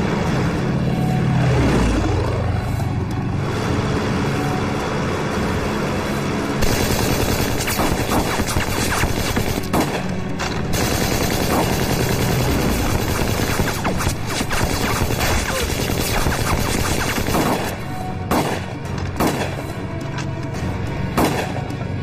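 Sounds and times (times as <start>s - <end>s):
background music: 0.0s - 22.0s
rapid rifle gunfire: 6.6s - 10.0s, 10.7s - 18.6s.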